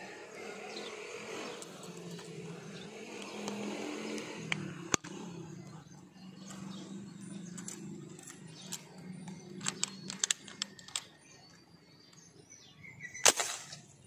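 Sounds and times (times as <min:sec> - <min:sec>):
low engine hum: 0:00.0 - 0:10.8
small clicks and ticks: 0:01.4 - 0:02.4, 0:03.1 - 0:12.3.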